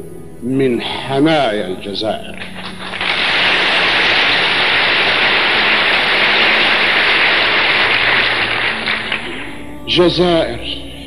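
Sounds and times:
loud steady rushing noise: 2.8s - 9.5s.

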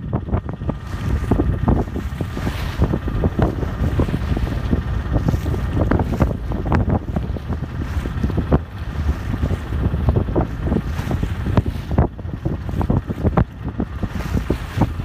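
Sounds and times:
strong wind buffeting microphone: 0.0s - 15.0s.

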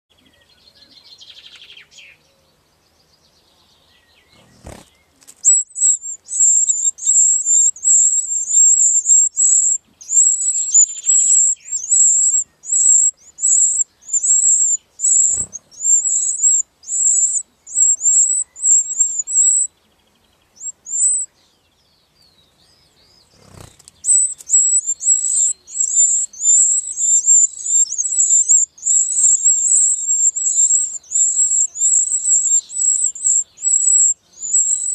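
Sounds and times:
nestlings begging calls: 4.4s - 19.7s, 20.6s - 21.3s, 23.2s - 34.9s.

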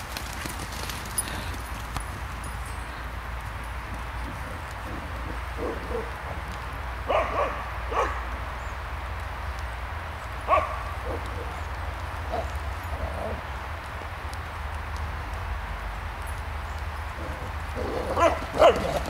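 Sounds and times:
puppies barking and yipping: 7.1s - 8.2s, 17.1s - 19.0s.

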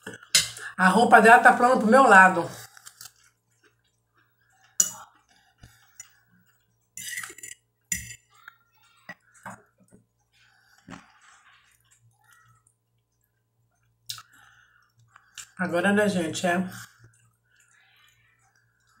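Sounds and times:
fork scraping plate: 7.0s - 8.3s.

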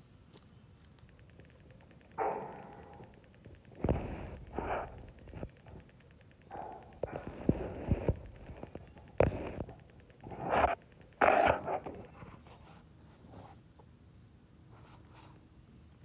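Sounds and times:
sharp clicks: 0.9s - 12.1s.

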